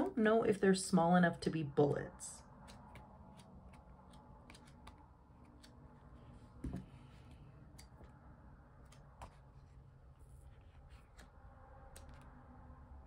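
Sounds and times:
soft thump of book: 6.6 - 7.0.

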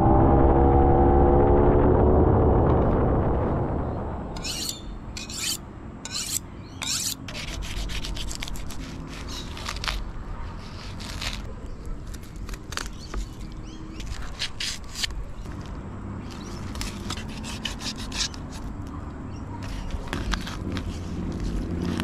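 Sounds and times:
knife scraping fish on cutting board: 4.4 - 11.5, 14.0 - 15.1, 16.4 - 18.7.

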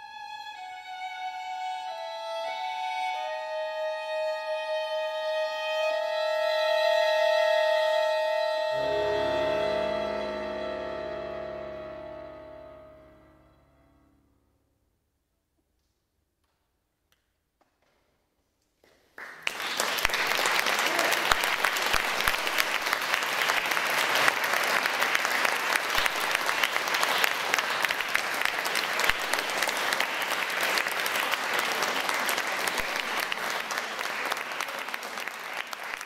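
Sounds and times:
audience applauding: 18.8 - 36.0.

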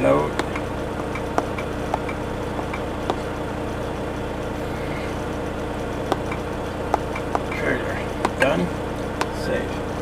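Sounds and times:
truck engine idling: 0.0 - 10.0
stylus tapping touchscreen: 0.3 - 3.3, 6.1 - 7.6, 8.2 - 8.5.

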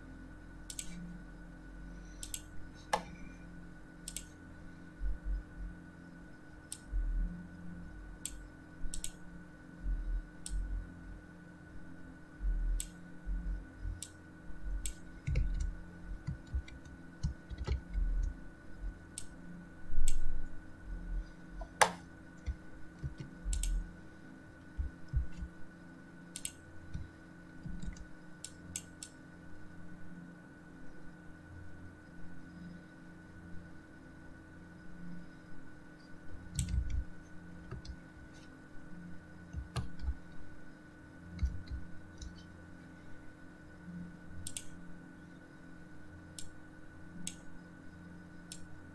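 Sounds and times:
faint electrical hum: 0.0 - 48.9
dull low thumps: 12.4 - 14.0, 14.7 - 19.0, 24.8 - 25.5
computer mouse and keyboard clicks: 14.8 - 18.4, 21.6 - 23.8, 26.4 - 29.2, 36.5 - 38.5, 39.5 - 40.2, 41.4 - 42.5.

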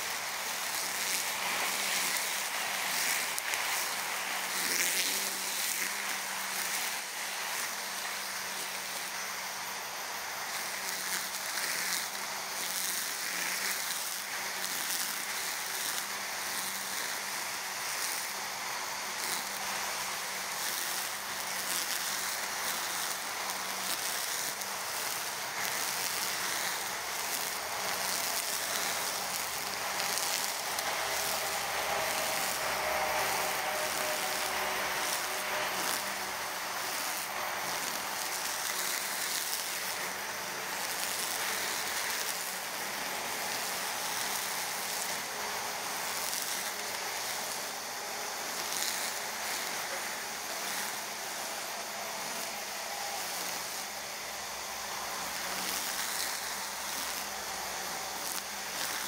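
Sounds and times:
brush cutter cutting grass: 0.0 - 59.0
road traffic: 24.9 - 58.9.

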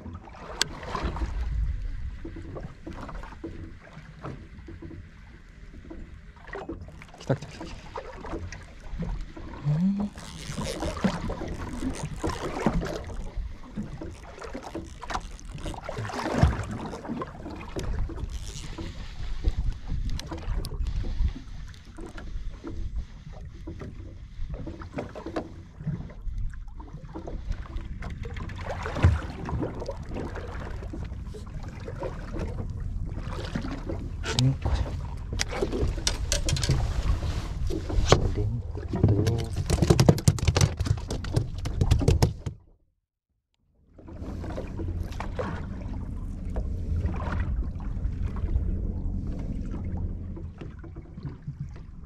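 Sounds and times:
water against hull: 0.0 - 52.0
fishing reel cranking: 10.1 - 13.4, 14.0 - 15.9, 18.2 - 19.0
rod handling noise: 10.1 - 13.4, 14.0 - 17.1, 18.2 - 18.9, 35.4 - 37.2
knocks against hull: 37.7 - 42.7.

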